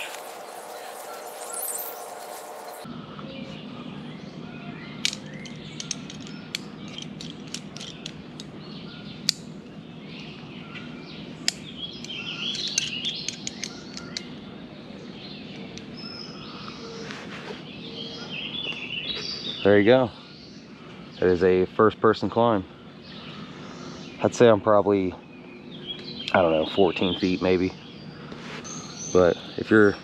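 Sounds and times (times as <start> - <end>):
songbirds chirping: 0.0 - 30.0
climbing gear clicking and rattling: 5.0 - 8.2, 12.1 - 14.3.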